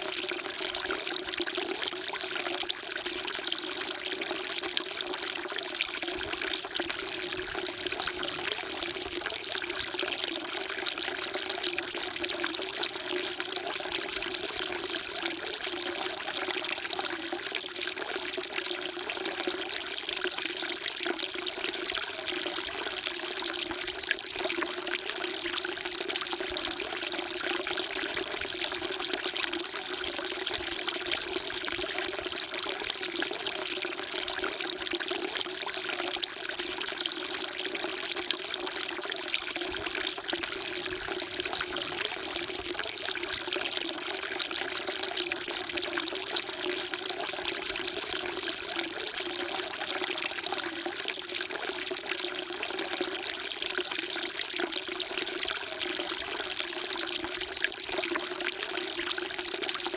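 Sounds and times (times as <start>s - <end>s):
water pouring into stone basin: 0.0s - 59.9s.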